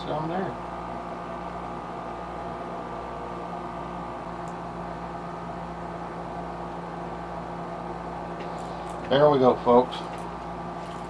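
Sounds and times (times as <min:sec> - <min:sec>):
machine drone with hiss: 0:00.0 - 0:11.0.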